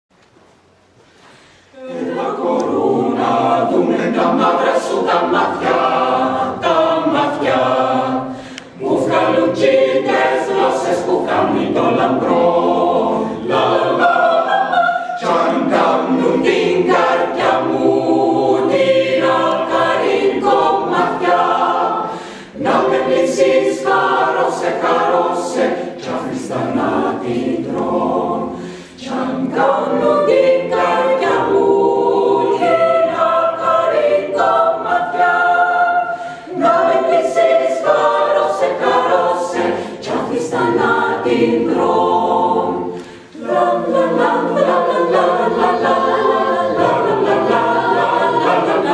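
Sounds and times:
mixed choir singing in harmony: 1.6s - 48.9s.

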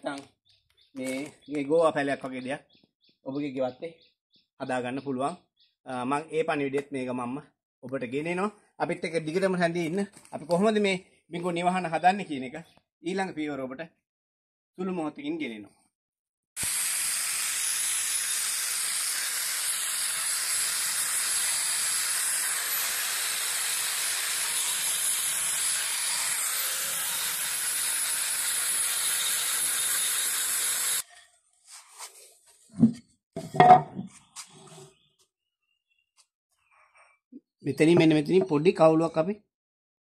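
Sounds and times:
angle grinder grinding wood: 16.6s - 32.2s
wooden board knocking: 32.8s - 34.1s.

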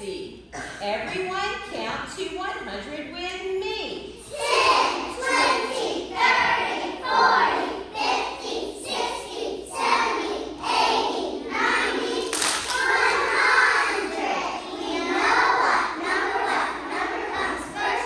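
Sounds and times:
children singing in unison: 4.2s - 18.0s.

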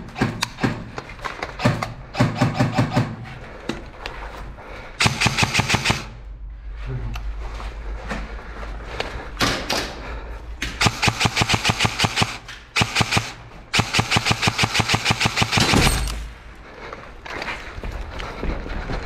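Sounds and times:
airsoft rifle firing bursts: 5.0s - 6.2s, 10.8s - 16.0s.

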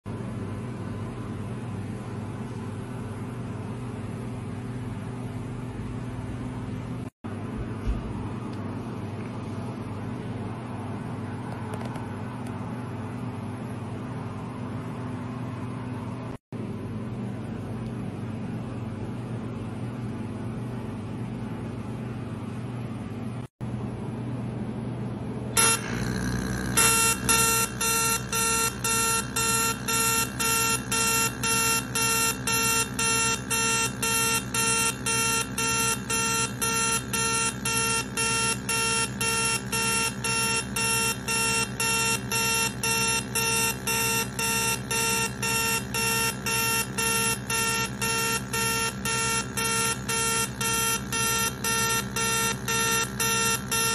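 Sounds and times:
electronic beeps: 26.7s - 53.9s.

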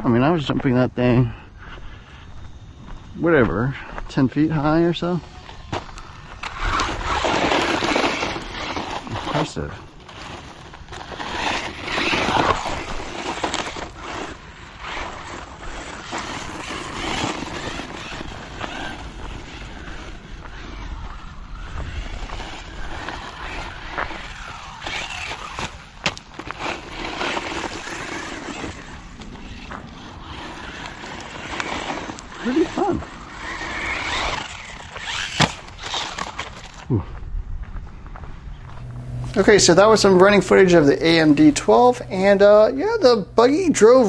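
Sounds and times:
tyres on loose dirt and gravel: 0.0s - 44.0s
rc car motor revving: 4.4s - 36.9s.

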